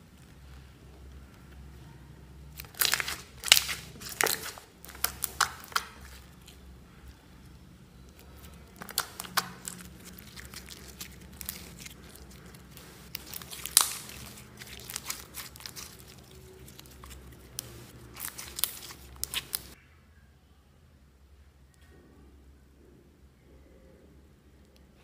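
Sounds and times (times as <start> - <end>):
slime popping and crackling: 2.5 - 7.2, 8.0 - 19.8.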